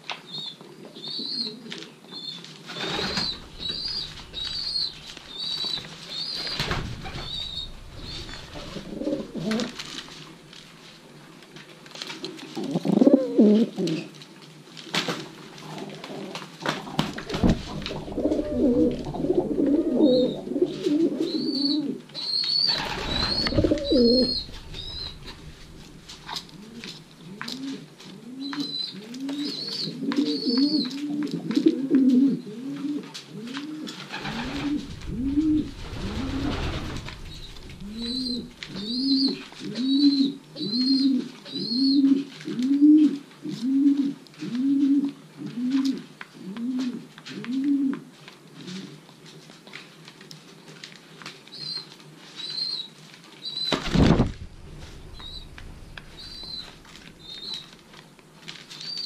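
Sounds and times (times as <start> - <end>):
pigeons cooing: 2.6 - 10.1, 12.5 - 14.1, 15.6 - 48.0, 53.6 - 57.8
rush of noise: 6.6 - 10.0, 22.8 - 27.2, 34.2 - 38.9, 53.9 - 57.2
high chirps: 55.1 - 57.6.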